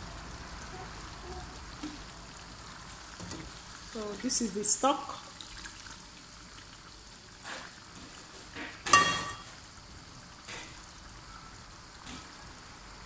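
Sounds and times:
stew simmering in a pan: 0:00.0 - 0:13.0
metallic clink of cookware: 0:08.9 - 0:09.5.

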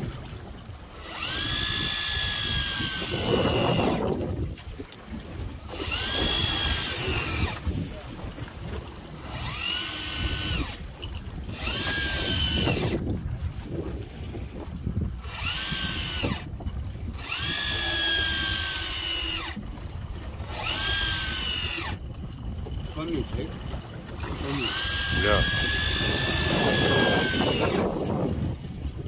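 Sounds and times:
electric fishing reel motor whining: 0:00.9 - 0:04.4, 0:05.6 - 0:07.9, 0:09.0 - 0:13.2, 0:15.2 - 0:22.9, 0:24.3 - 0:28.6.

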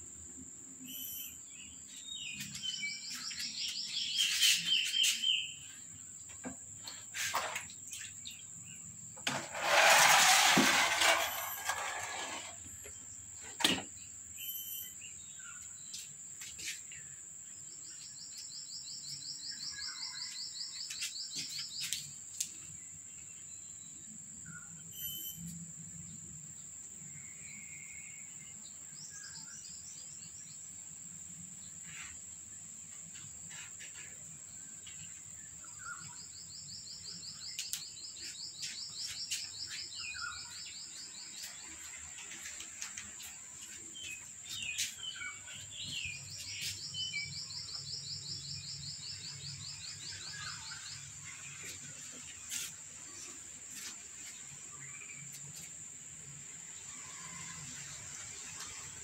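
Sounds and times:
insect high-pitched drone: 0:00.8 - 0:01.8, 0:14.3 - 0:15.6, 0:24.4 - 0:26.4
bird chirps: 0:00.8 - 0:05.9, 0:14.4 - 0:16.0, 0:44.0 - 0:51.8.

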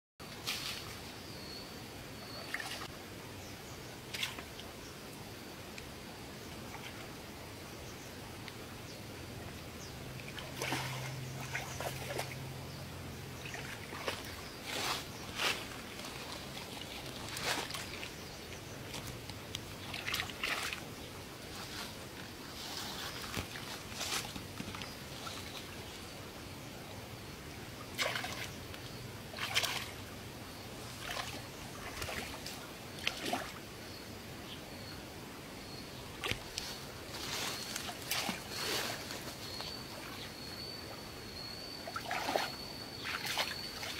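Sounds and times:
feet wading in muddy water: 0:10.2 - 0:12.5, 0:13.4 - 0:20.9, 0:27.9 - 0:28.6, 0:29.3 - 0:30.0, 0:30.8 - 0:33.6, 0:36.2 - 0:40.4, 0:41.8 - 0:43.9
fish splashing and thrashing: 0:19.8 - 0:20.8, 0:27.9 - 0:28.6, 0:29.3 - 0:30.0, 0:31.0 - 0:33.5, 0:37.6 - 0:39.4.

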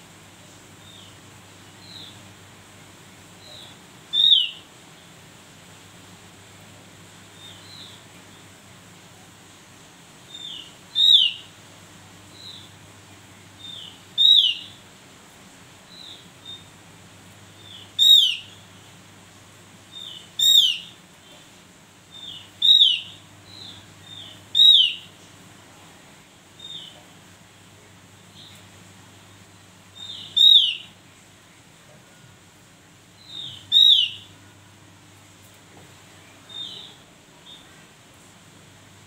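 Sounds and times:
soft bird call notes: 0:33.2 - 0:34.4.

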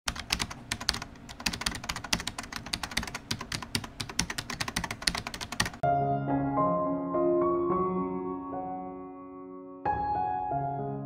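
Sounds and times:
computer keyboard typing: 0:00.1 - 0:05.8
soft piano music: 0:05.8 - 0:11.0.

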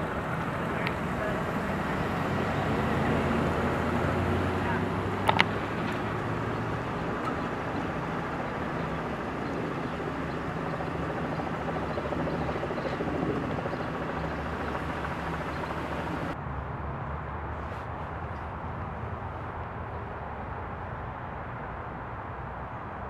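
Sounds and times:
ambulance engine running: 0:00.0 - 0:16.4
outdoor road noise: 0:00.0 - 0:23.0
sharp clicks: 0:05.2 - 0:06.3.

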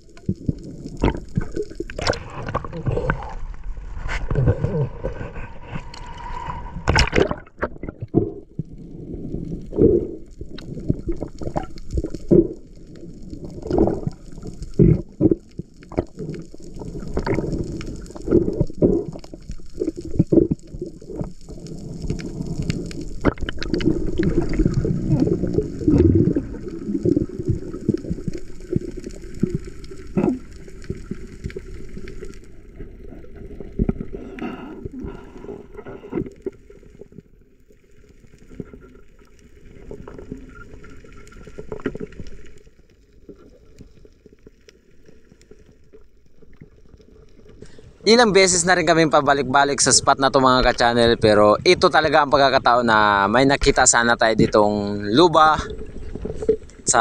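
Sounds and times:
water sloshing and gurgling: 0:00.0 - 0:57.0
knocks and splashes: 0:06.8 - 0:08.3.

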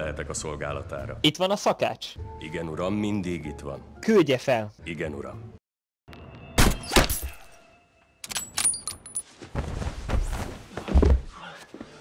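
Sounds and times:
rustling with dull thumps: 0:09.3 - 0:11.4.

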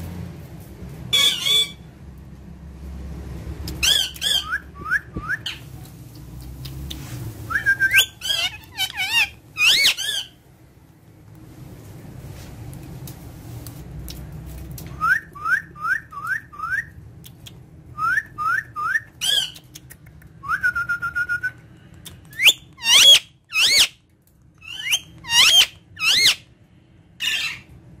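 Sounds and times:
parakeet whistling and screeching: 0:01.1 - 0:01.9, 0:03.8 - 0:05.6, 0:07.5 - 0:10.4, 0:18.0 - 0:19.6, 0:22.3 - 0:24.0, 0:24.6 - 0:26.5, 0:27.2 - 0:27.7.

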